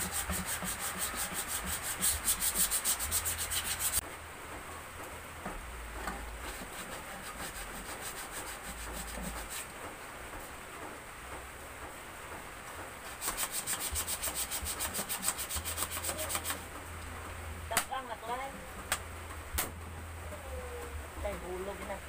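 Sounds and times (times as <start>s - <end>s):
wood being sanded by hand: 0.0s - 4.0s, 6.4s - 9.7s, 13.1s - 16.6s.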